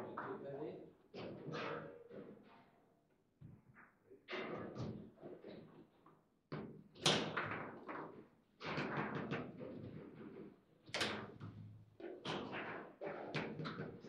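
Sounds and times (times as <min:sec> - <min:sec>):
table football knocks and clacks: 0:06.5 - 0:14.0.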